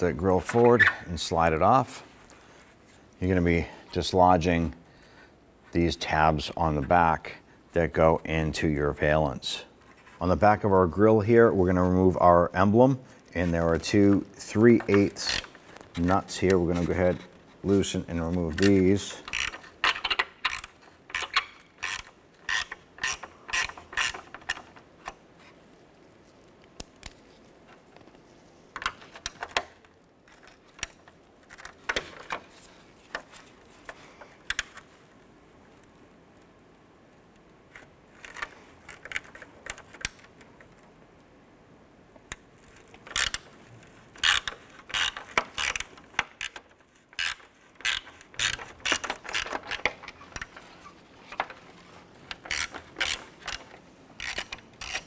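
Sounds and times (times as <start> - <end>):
hand ratchet clicking: 14.8 - 16.9, 18.6 - 24.7, 43.1 - 43.4, 44.2 - 50.7, 52.3 - 55.0.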